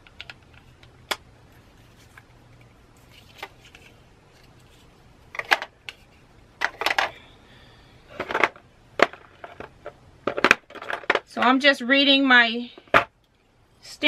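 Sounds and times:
plastic pads clacking: 0:03.0 - 0:07.2, 0:08.1 - 0:11.5.

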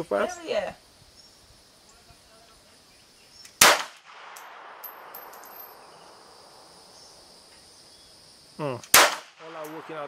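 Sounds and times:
lingering hiss: 0:00.0 - 0:10.0
pistol shot: 0:03.6 - 0:05.2, 0:08.9 - 0:10.0
faint high clinks: 0:04.3 - 0:06.6.

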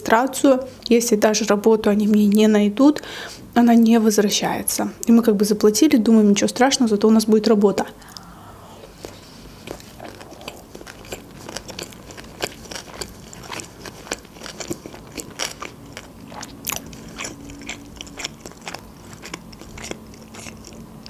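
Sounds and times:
person chewing with mouth clicks: 0:08.0 - 0:21.0.

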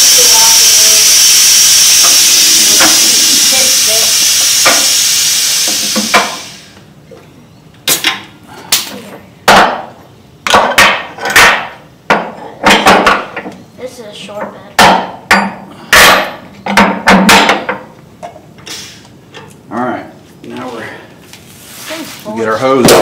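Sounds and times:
hydraulic lift pump hissing: 0:00.0 - 0:06.8.

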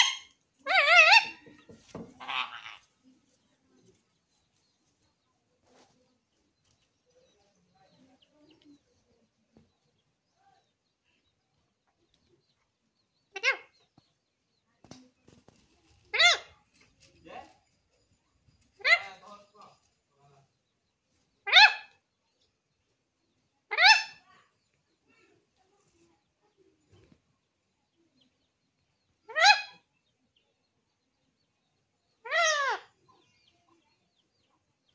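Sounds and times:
parakeet squawk: 0:00.0 - 0:01.4, 0:02.2 - 0:02.8, 0:21.4 - 0:22.0, 0:23.7 - 0:24.2, 0:29.3 - 0:29.8.

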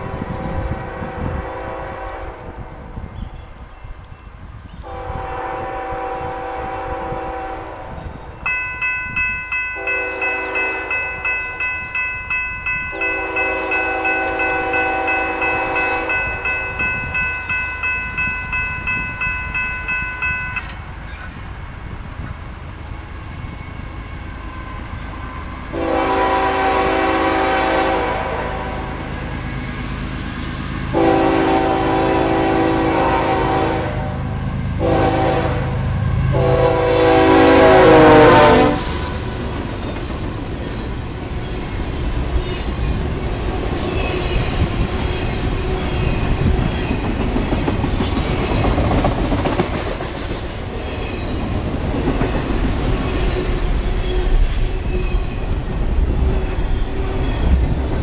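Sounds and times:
train horn blasts: 0:00.0 - 0:03.0, 0:04.8 - 0:08.6, 0:09.7 - 0:12.0, 0:12.9 - 0:17.6, 0:24.6 - 0:29.5, 0:30.9 - 0:39.1
locomotive engine and wheels rumbling: 0:00.0 - 0:58.0
bell ringing: 0:08.4 - 0:20.9.

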